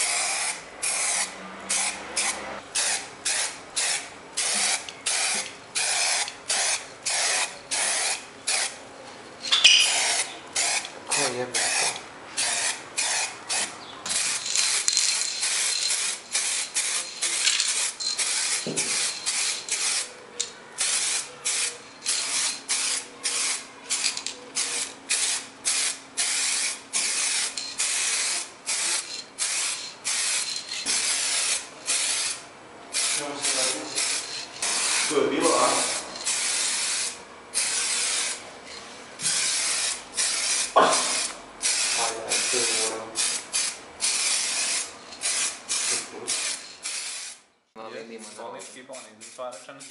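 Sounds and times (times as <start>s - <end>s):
spray paint can hissing: 0.0s - 8.8s, 9.4s - 20.2s, 20.8s - 38.4s, 39.2s - 47.4s, 48.2s - 49.9s.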